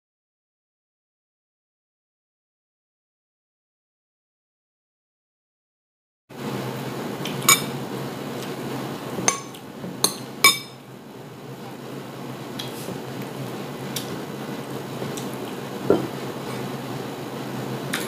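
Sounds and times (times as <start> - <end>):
low room hum: 6.3 - 18.0.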